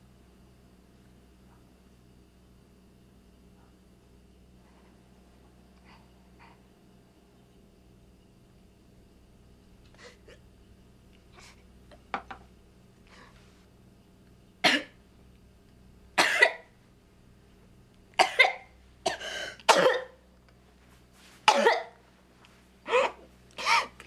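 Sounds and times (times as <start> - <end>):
woman coughing: 14.6 - 15.0, 16.2 - 16.7, 18.2 - 20.2, 21.5 - 22.0, 22.9 - 24.0.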